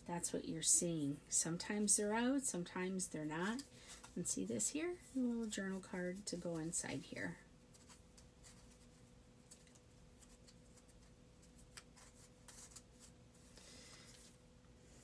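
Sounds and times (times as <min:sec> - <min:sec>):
paper rustling: 0:07.7 - 0:14.4.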